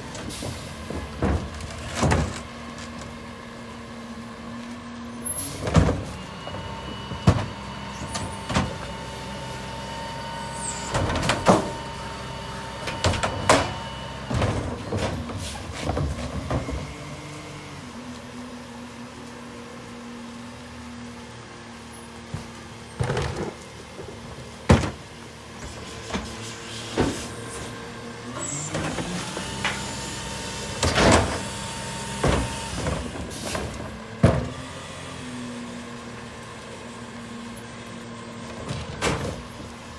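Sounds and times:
garbage carts banging and clattering: 0.0s - 3.2s, 10.4s - 17.1s, 22.2s - 27.8s, 28.4s - 34.8s, 38.1s - 39.9s.

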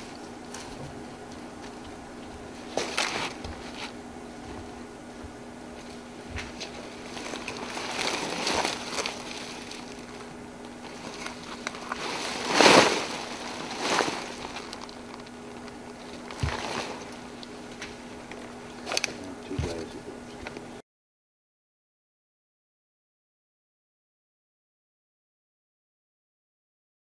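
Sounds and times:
leaves and plastic rustling: 0.0s - 4.8s, 5.7s - 20.6s
steady low hum: 0.0s - 20.8s.

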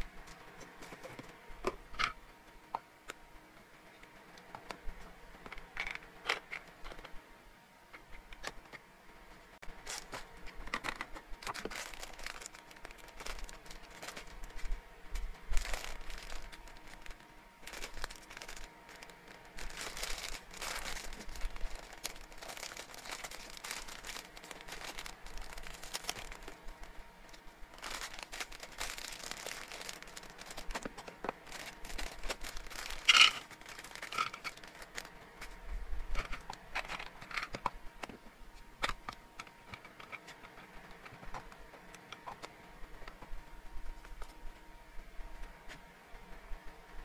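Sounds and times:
plastic bag crinkling: 9.6s - 10.3s, 11.4s - 14.7s, 15.5s - 35.2s
dry treats rattling into plastic tub: 15.6s - 26.6s, 31.5s - 35.0s.

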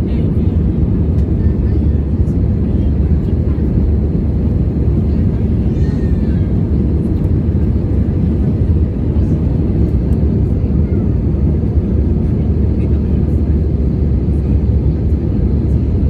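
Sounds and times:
airliner engines and rushing air: 0.0s - 16.0s.

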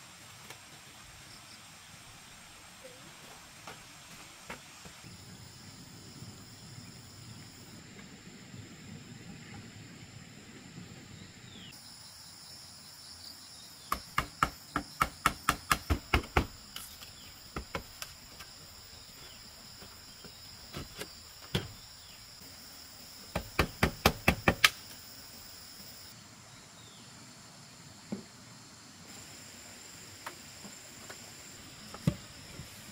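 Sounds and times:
high insect drone: 5.0s - 9.2s, 11.1s - 32.9s
machete chopping bamboo: 13.9s - 18.5s, 23.4s - 24.8s.

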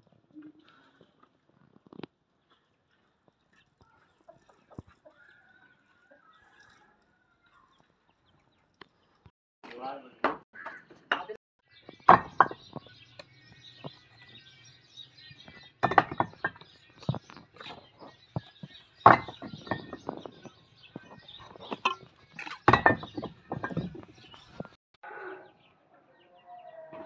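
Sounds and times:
trowel tapping and scraping bricks: 11.9s - 14.4s, 15.4s - 24.8s.

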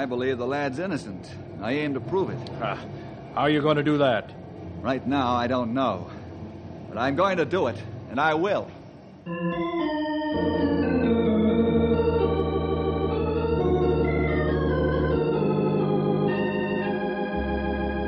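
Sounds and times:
organ chords with vibrato: 9.2s - 18.0s.

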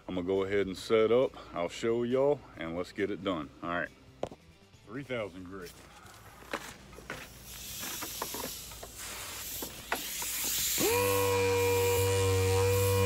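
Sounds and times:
water hiss: 7.2s - 13.0s
air sander whining: 9.6s - 13.0s.

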